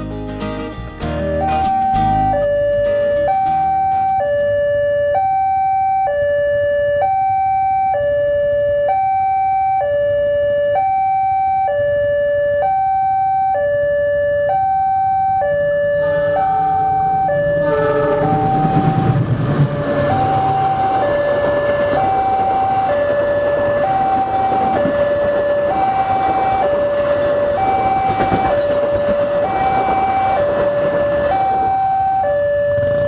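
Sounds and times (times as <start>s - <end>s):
two-tone crossing alarm chime: 1.1s - 33.0s
approaching train rumble: 15.9s - 33.0s.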